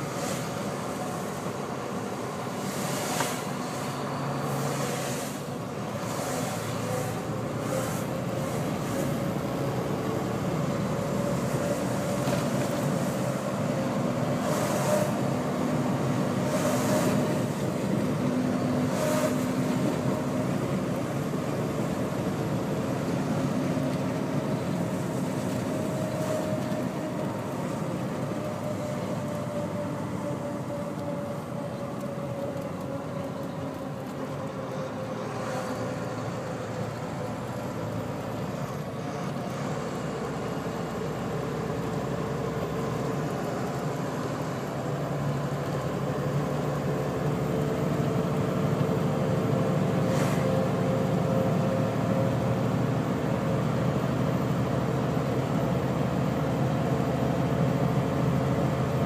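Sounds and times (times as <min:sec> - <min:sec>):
passing trucks whooshing: 0:00.0 - 0:29.3
road noise: 0:00.0 - 0:59.0
truck diesel engine under load: 0:00.0 - 0:59.0.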